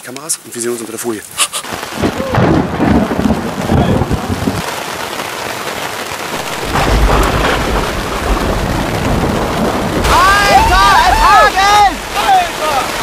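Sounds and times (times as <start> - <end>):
heavy rain on plastic tarp: 0.0 - 13.0
thunder rumbling: 1.9 - 4.7, 6.2 - 13.0.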